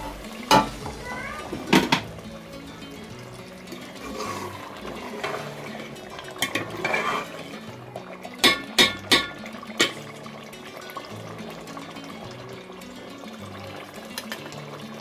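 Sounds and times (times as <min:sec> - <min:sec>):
soft background music: 0:00.0 - 0:15.0
ladle stirring curry in pot: 0:03.8 - 0:07.6
ladle clinking against pot: 0:06.4 - 0:07.5, 0:08.4 - 0:10.0.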